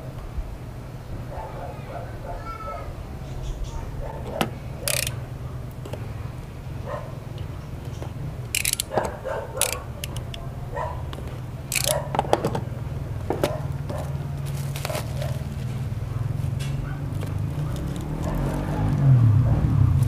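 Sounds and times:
steady low hum: 0:00.0 - 0:20.0
bubble wrap crackling: 0:13.7 - 0:19.1.

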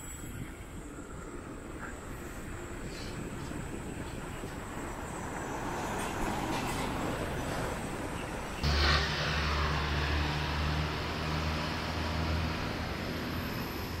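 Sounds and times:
truck passing: 0:05.0 - 0:14.0.

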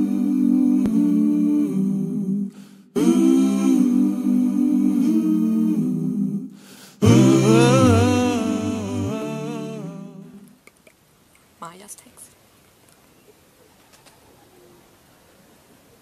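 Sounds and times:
lower voice humming: 0:00.0 - 0:10.5
voices humming a cappella: 0:00.0 - 0:10.6.

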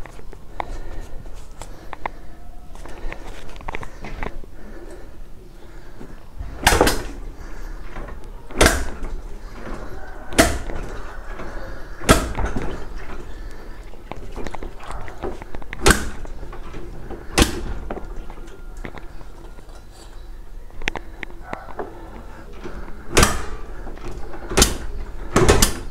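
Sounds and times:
motorcycle kick-starter clunks: 0:06.4 - 0:20.1, 0:21.7 - 0:25.9.

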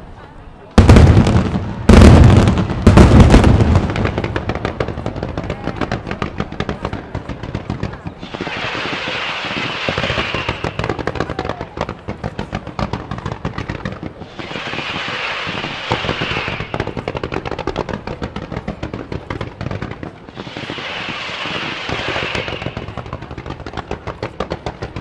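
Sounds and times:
fireworks bangs: 0:00.8 - 0:25.0
fireworks hiss: 0:08.2 - 0:11.4, 0:14.0 - 0:17.6, 0:20.2 - 0:23.8.

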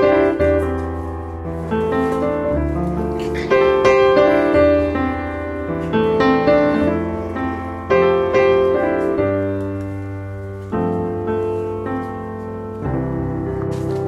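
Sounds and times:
slow piano chords: 0:00.0 - 0:14.0.

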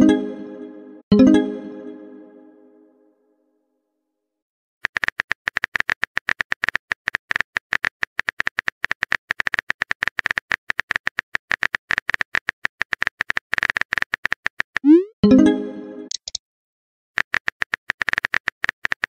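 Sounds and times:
rapid typing clicks: 0:04.8 - 0:14.8, 0:17.2 - 0:19.0.

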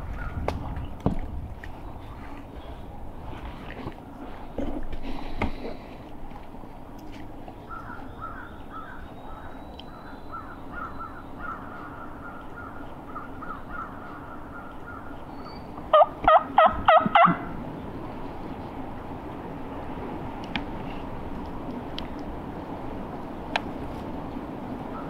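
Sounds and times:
turkey call hen yelps: 0:15.9 - 0:17.5.

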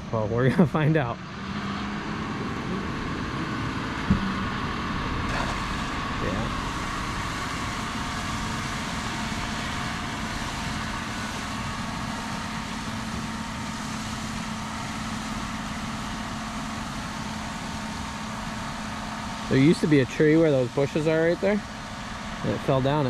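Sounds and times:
machine engine running: 0:00.0 - 0:23.0
outdoor noise: 0:00.0 - 0:23.0.

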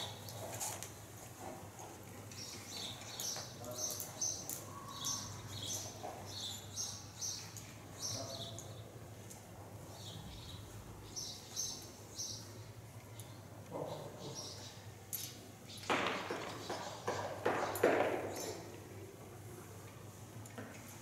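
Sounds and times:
small birds chirping: 0:01.8 - 0:15.0, 0:15.6 - 0:18.7.

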